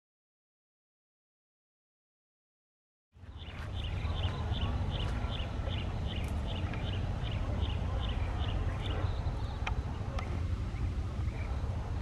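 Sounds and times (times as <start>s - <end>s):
constant low rumble: 3.2s - 12.0s.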